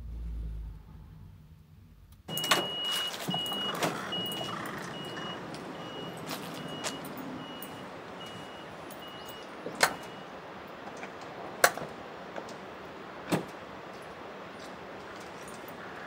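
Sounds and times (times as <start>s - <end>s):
high warning beeps: 2.3s - 10.3s.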